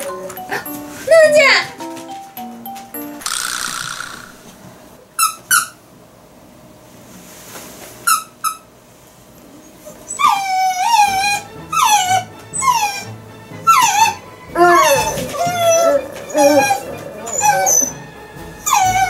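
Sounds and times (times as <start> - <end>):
dog yipping: 9.6 - 13.1, 13.7 - 19.0
dog whining: 9.6 - 19.0.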